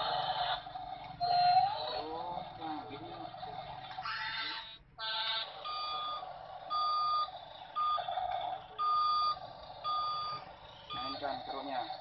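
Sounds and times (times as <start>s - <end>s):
toy motor whirring: 0.0s - 12.0s
reversing beeper: 5.6s - 11.7s.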